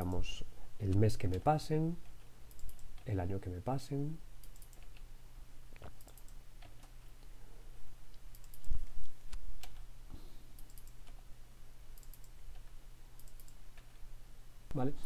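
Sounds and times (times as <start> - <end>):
low steady hum: 0.0 - 15.0
mouse clicks: 5.8 - 7.3, 8.1 - 9.8, 10.6 - 11.2, 12.0 - 12.4, 13.2 - 13.9.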